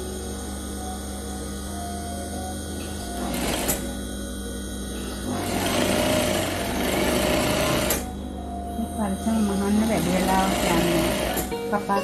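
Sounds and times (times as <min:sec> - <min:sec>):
sewing machine stitching: 0:03.2 - 0:04.0, 0:05.3 - 0:08.1, 0:09.8 - 0:11.5.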